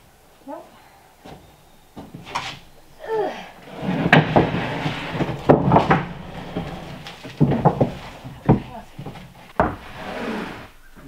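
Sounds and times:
wood sheets scraping: 0:01.2 - 0:02.8, 0:03.6 - 0:10.8
sharp wooden knocks: 0:03.9 - 0:09.9.

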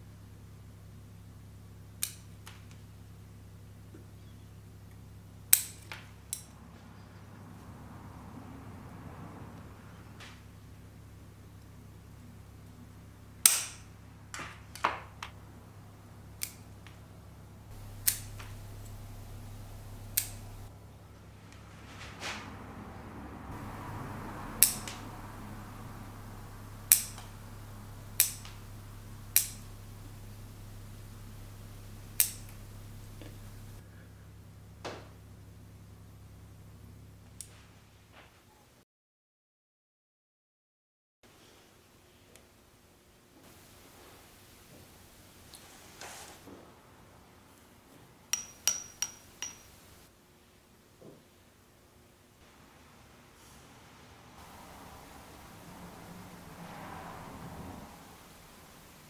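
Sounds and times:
scissors snipping twigs: 0:17.8 - 0:20.7, 0:23.6 - 0:33.8.

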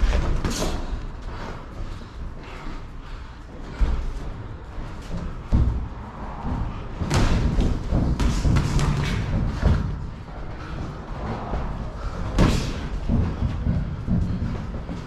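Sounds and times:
boxing gloves thudding: 0:06.4 - 0:10.1, 0:12.2 - 0:15.0.

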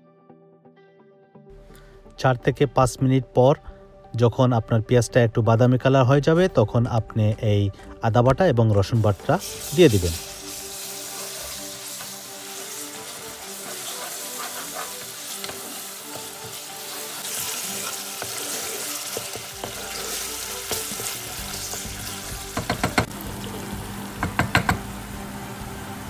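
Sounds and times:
onions sizzling in hot oil: 0:08.9 - 0:26.0
wooden spatula stirring: 0:09.6 - 0:23.1.

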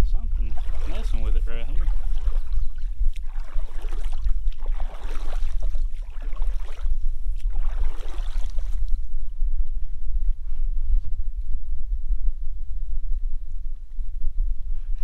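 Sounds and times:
wind buffeting microphone: 0:00.0 - 0:15.0
water lapping against hull: 0:00.3 - 0:09.2.

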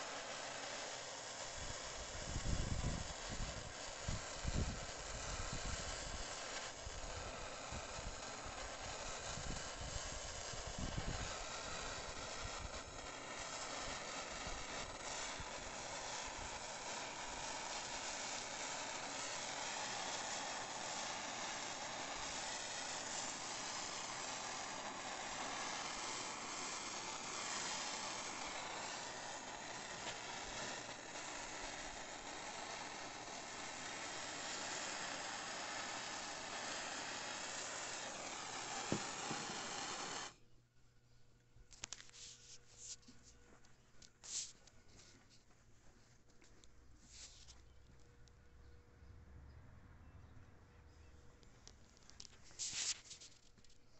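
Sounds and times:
gas torch hissing: 0:00.0 - 0:40.4, 0:51.8 - 0:53.4.

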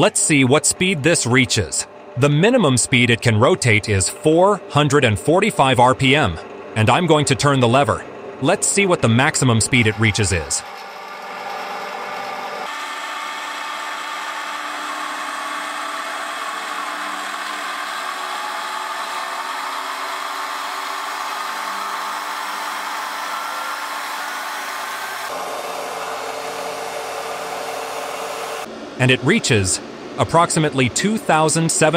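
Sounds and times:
drill press motor and belt whine: 0:00.8 - 0:03.6, 0:06.4 - 0:07.3, 0:08.0 - 0:28.8.

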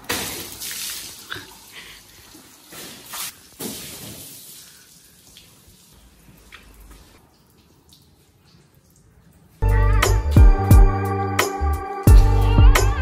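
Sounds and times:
water running onto floor: 0:00.0 - 0:09.6.

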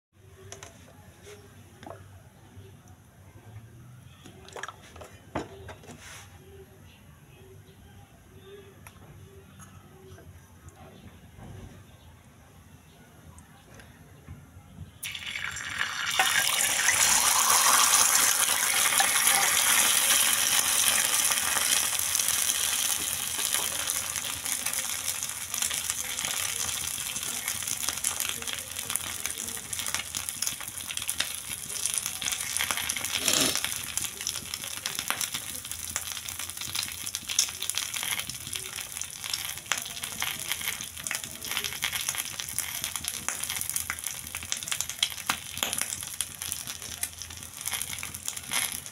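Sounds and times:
egg sizzling in hot oil: 0:15.0 - 0:48.9.

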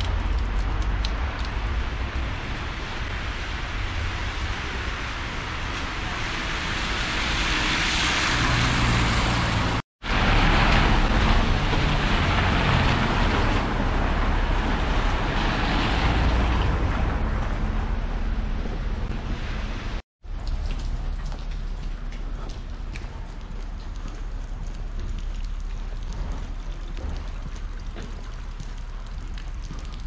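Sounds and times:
tyres hissing on wet road: 0:01.9 - 0:16.6.

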